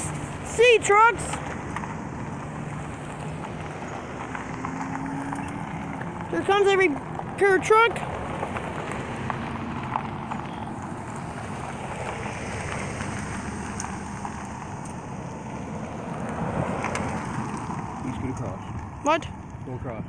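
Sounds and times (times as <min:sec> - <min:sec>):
cars driving past: 0:00.0 - 0:20.0.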